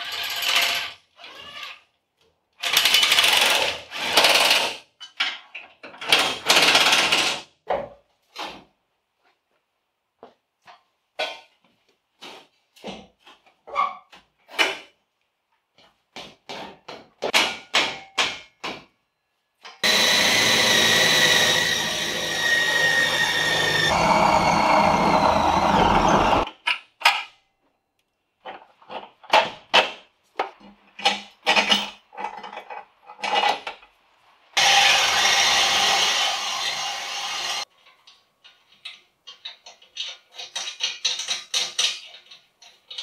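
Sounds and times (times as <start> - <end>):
power drill boring into metal: 19.8 - 26.4, 34.6 - 37.6
tools clanking and knocking: 28.4 - 33.9, 37.7 - 43.0.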